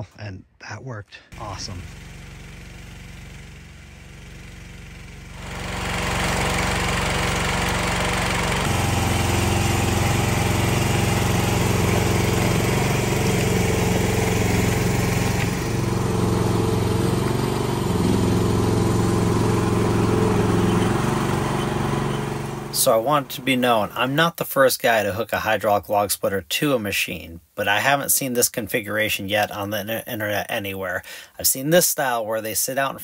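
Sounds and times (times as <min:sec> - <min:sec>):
engine running near idle: 0:01.4 - 0:24.1.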